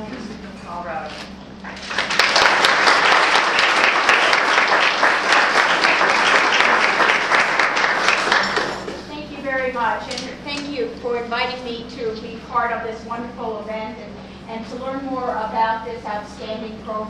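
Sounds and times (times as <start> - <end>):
audience applauding: 1.7 - 9.1.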